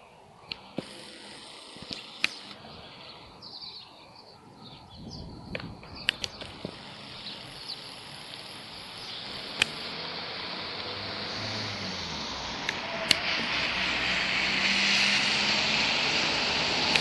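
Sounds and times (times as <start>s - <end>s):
street background noise: 0.0s - 17.0s
sharp clicks: 0.5s - 2.6s, 5.5s - 10.0s, 12.6s - 13.3s.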